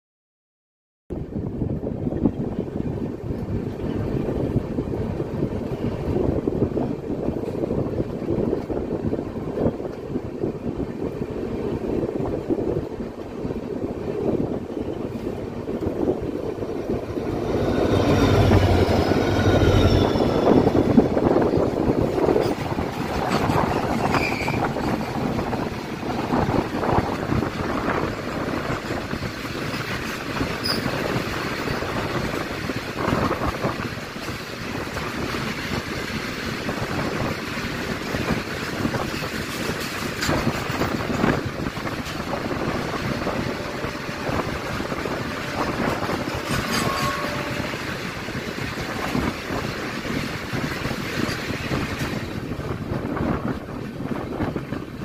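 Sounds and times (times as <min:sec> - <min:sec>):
diesel locomotive throb: 0:12.2 - 0:29.4, 0:40.8 - 0:54.4
wheel squeals: 0:23.4 - 0:24.9, 0:30.6 - 0:31.0.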